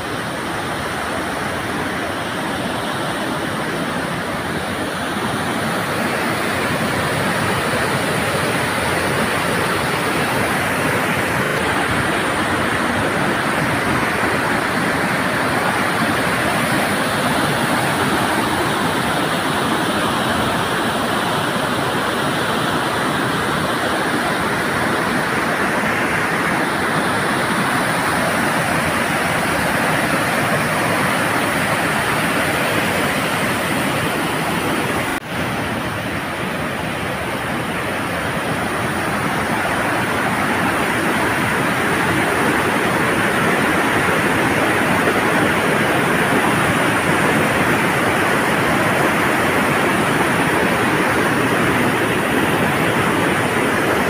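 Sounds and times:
water rushing over boulders: 0:00.0 - 0:54.0.

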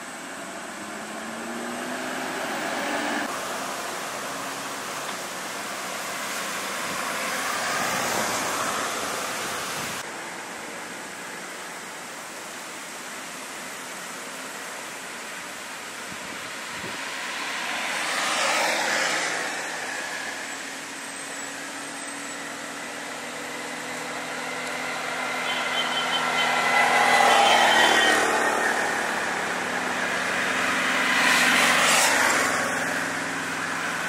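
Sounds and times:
vehicles passing on road: 0:00.0 - 0:34.0.

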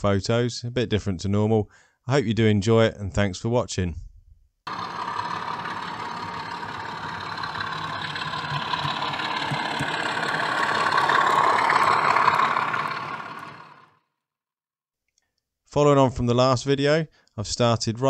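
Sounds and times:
model train rumbling past: 0:04.7 - 0:14.0.

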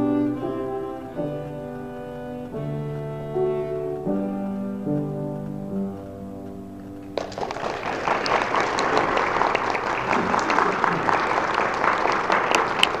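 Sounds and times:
cello note: 0:00.0 - 0:05.8
audience applause: 0:07.2 - 0:13.0.

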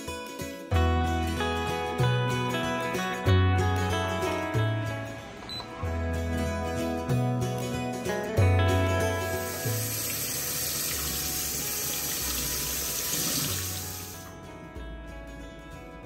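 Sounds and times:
background music: 0:00.0 - 0:16.0
tap water splashing in colander: 0:09.5 - 0:14.2.

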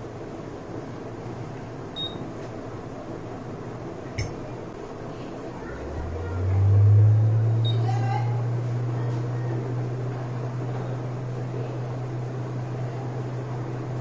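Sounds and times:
hot air blower drone: 0:04.7 - 0:14.0.

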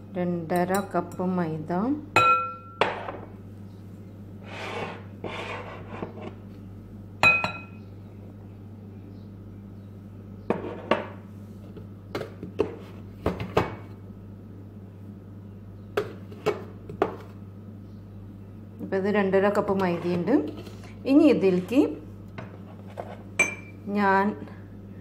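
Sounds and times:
mug clinking against glass bowl: 0:02.2 - 0:03.1, 0:07.2 - 0:07.8, 0:23.4 - 0:23.8.

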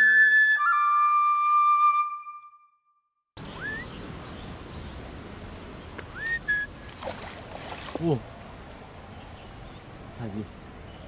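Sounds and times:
flute music: 0:00.0 - 0:03.9
short rising bird calls: 0:03.4 - 0:04.0
outdoor background noise: 0:03.4 - 0:11.0.

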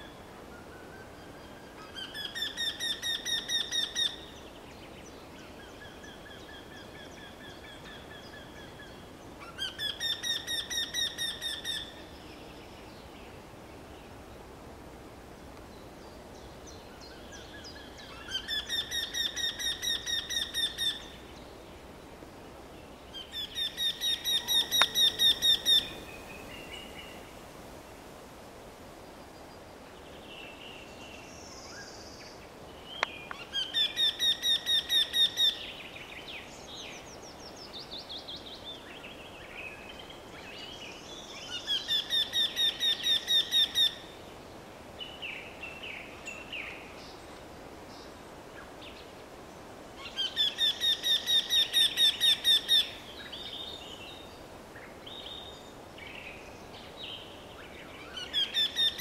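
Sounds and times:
other birds chirping: 0:23.2 - 0:27.2.

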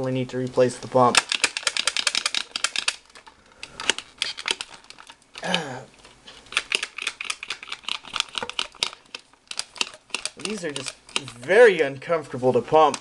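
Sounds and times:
plastic pump clacking: 0:00.8 - 0:05.6, 0:06.5 - 0:11.5, 0:12.8 - 0:13.0.

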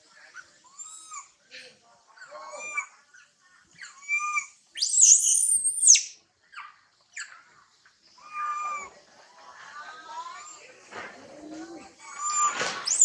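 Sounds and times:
baby monkey whimpering cries: 0:03.8 - 0:05.4, 0:12.0 - 0:13.0
baby monkey shrill scream: 0:03.8 - 0:06.1, 0:12.0 - 0:13.0
faint squeaks: 0:10.4 - 0:13.0.

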